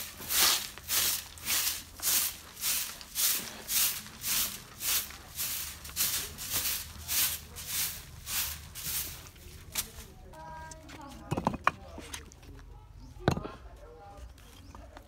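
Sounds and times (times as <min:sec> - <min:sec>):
hand broom sweeping dirt floor: 0:00.0 - 0:10.5.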